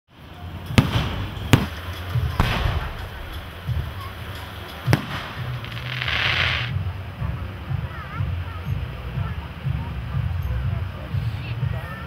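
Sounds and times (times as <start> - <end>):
fireworks bangs: 0.6 - 6.8.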